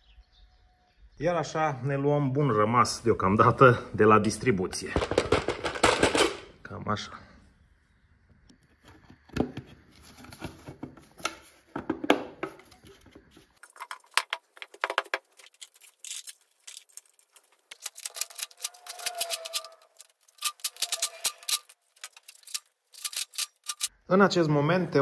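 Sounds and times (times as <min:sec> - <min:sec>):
small metal bolts clicking: 0:15.5 - 0:23.9.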